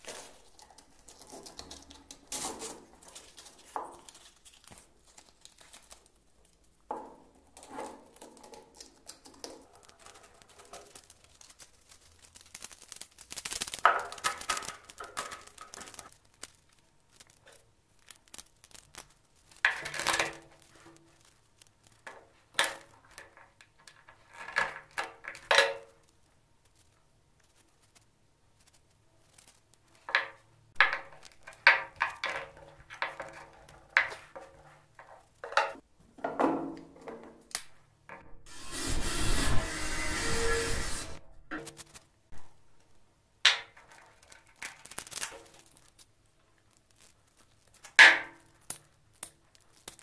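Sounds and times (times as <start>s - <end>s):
sandpaper crinkling and rustling: 0.0s - 6.8s, 7.8s - 23.2s, 43.8s - 48.7s
sandpaper edges scraping: 38.5s - 41.9s.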